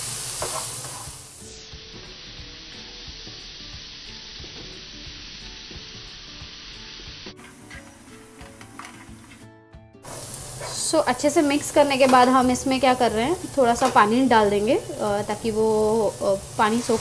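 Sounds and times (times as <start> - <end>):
food sizzling in a pan: 0.0 - 17.0
spatula scraping a pan: 7.4 - 9.4.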